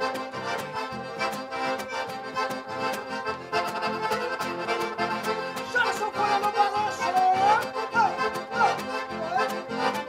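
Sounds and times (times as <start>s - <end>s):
accordion band music: 0.0s - 10.0s
acoustic guitar strumming: 0.0s - 10.0s
high held melody line: 0.0s - 10.0s.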